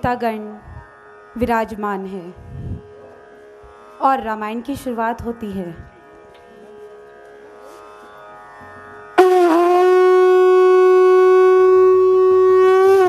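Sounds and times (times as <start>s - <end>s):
conch shell blown: 8.8s - 13.0s.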